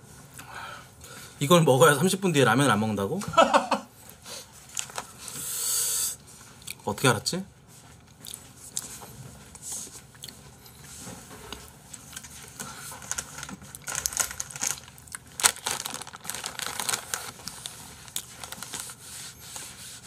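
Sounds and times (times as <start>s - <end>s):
plastic bag rustling and crinkling: 4.6s - 5.2s, 12.0s - 20.0s.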